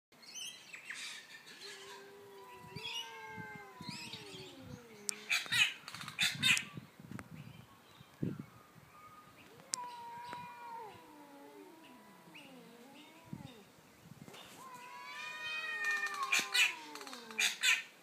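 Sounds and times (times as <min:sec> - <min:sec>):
cats yowling: 0:01.6 - 0:06.6, 0:09.0 - 0:13.7, 0:14.6 - 0:17.8.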